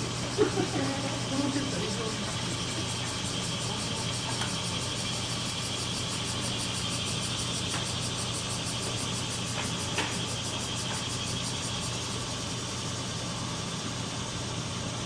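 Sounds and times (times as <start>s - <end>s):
low mechanical hum with hiss: 0.0s - 15.0s.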